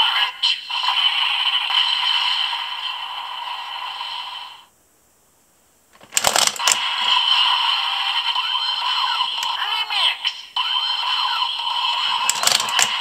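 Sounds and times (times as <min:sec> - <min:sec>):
plastic clicks and clatter: 0:06.0 - 0:06.9, 0:12.2 - 0:13.0.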